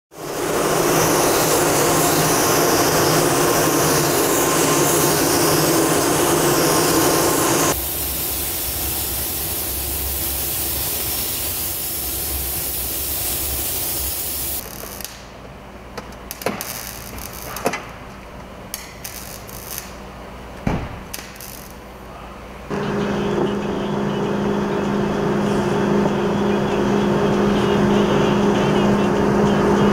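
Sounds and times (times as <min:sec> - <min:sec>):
paint spray gun hissing: 0:00.2 - 0:14.6
steady hum: 0:21.7 - 0:29.9.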